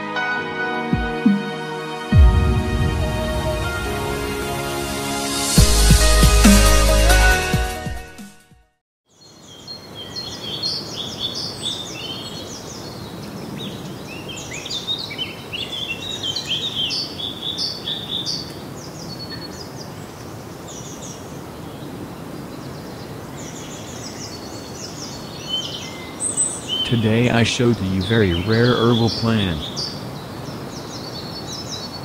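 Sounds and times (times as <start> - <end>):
music: 0.0 - 8.8
small birds chirping: 9.1 - 32.0
steady background hiss: 9.2 - 32.0.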